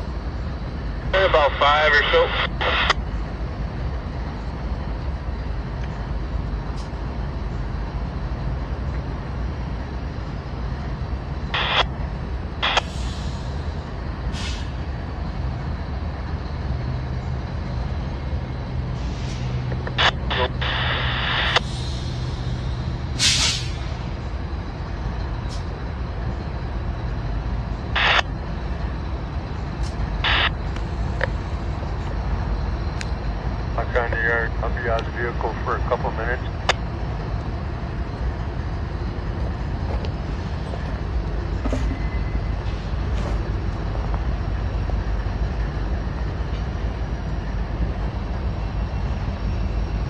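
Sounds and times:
diesel locomotives idling: 0.0 - 50.0
air brake hisses: 12.8 - 13.6, 14.3 - 14.8, 19.0 - 19.6, 21.6 - 24.0.

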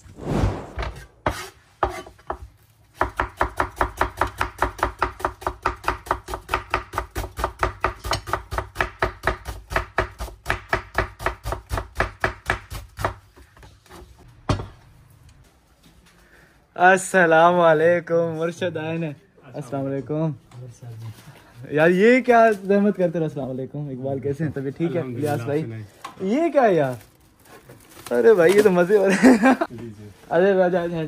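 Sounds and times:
short swoosh: 0.0 - 1.2
cleaver chopping onion on board: 1.2 - 13.3.

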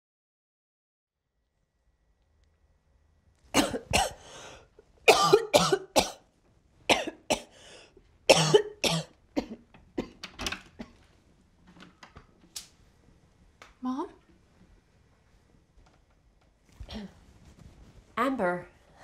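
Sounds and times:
person coughing: 3.6 - 4.4, 5.1 - 6.2, 6.9 - 7.5, 8.3 - 10.2.

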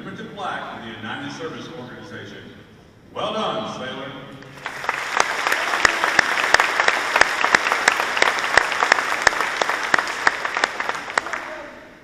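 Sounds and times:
audience applauding: 4.5 - 12.0.

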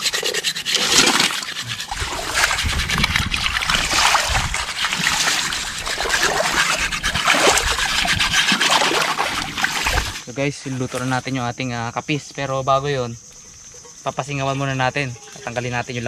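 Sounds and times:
water sloshing and splashing: 0.0 - 11.2.

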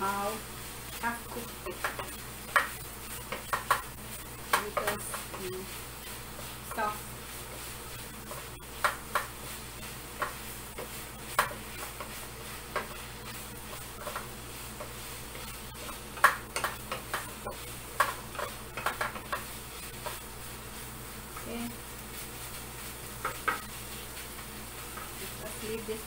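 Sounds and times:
light sizzle in frying pan: 0.0 - 26.0
utensil tapping and scraping pan: 0.9 - 26.0.

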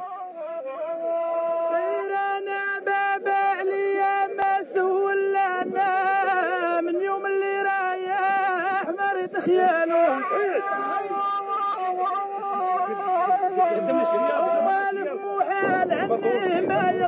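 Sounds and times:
ornamented melody over drone: 15.6 - 17.0.

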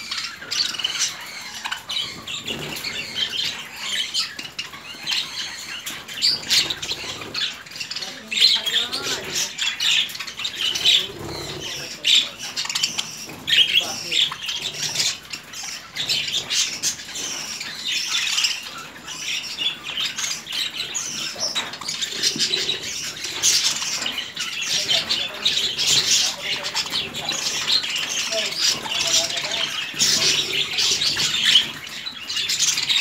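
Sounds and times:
budgerigars chattering: 0.0 - 33.0.

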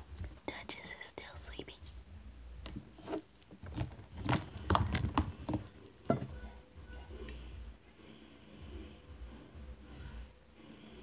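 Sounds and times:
slime squelching and popping: 3.6 - 5.7.

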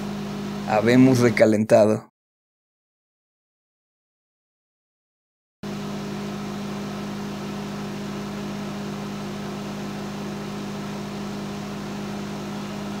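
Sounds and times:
microwave oven humming: 0.0 - 1.6, 5.6 - 13.0.

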